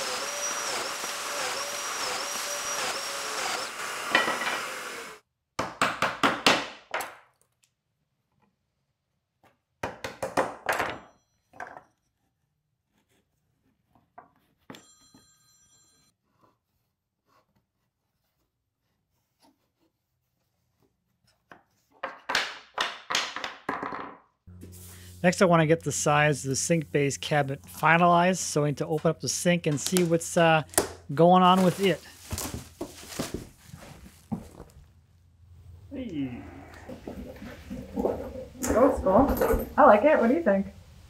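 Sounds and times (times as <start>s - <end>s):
joiner tool with dust extractor: 0.0s - 5.2s.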